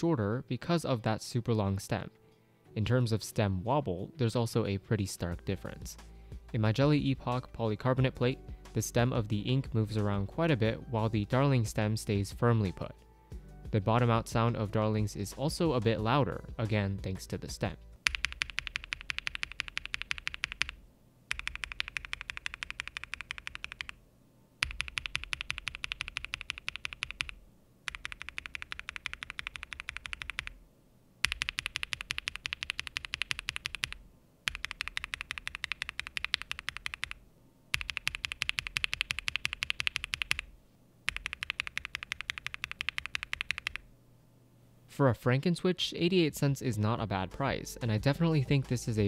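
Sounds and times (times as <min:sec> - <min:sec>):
mechanical keyboard typing: 0:18.0 - 0:24.0, 0:24.6 - 0:30.6, 0:31.2 - 0:40.5, 0:41.1 - 0:43.9.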